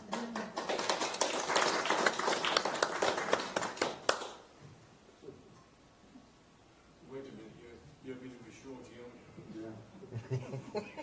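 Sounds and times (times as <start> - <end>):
crowd applauding: 0.0 - 4.4.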